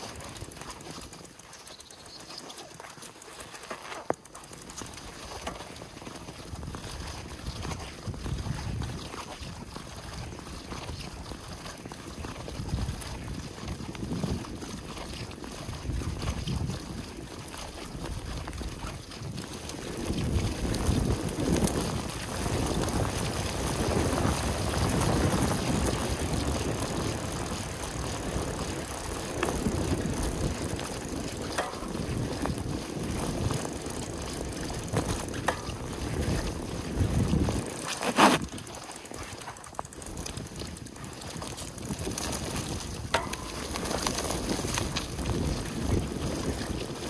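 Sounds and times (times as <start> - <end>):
bike tyres rolling over ground: 0.0 - 47.0
wind buffeting microphone: 6.3 - 47.0.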